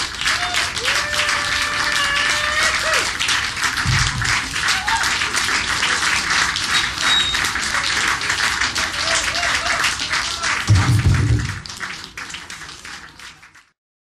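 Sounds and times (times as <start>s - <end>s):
audience applauding: 0.0s - 13.8s.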